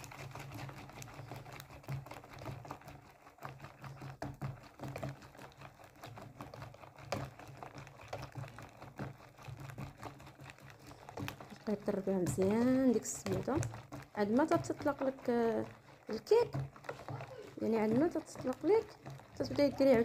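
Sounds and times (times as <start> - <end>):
whisk clicking against bowl: 0.0 - 20.0.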